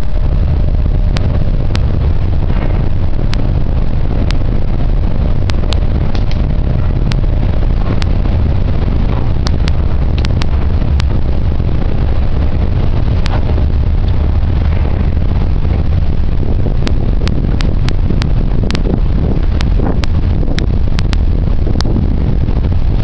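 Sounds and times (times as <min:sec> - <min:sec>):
ferry engine low rumble: 0:00.0 - 0:23.0
sharp clicks: 0:05.4 - 0:08.3, 0:09.2 - 0:11.2, 0:16.8 - 0:22.0.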